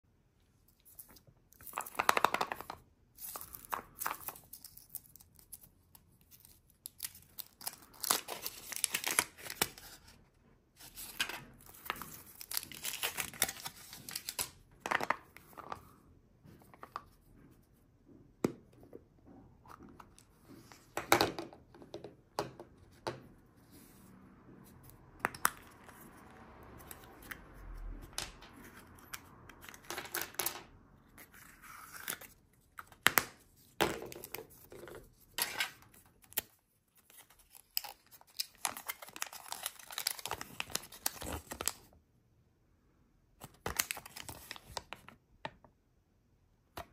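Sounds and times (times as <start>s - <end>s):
plastic bag crinkling and tearing: 37.4s - 41.9s.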